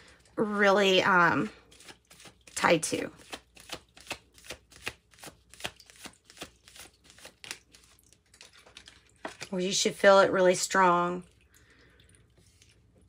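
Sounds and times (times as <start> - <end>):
cards being shuffled: 1.7 - 9.6.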